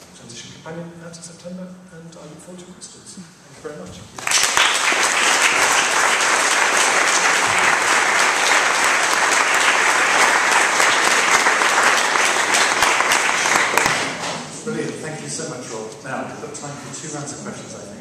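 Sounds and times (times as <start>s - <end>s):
audience applauding: 4.2s - 14.4s.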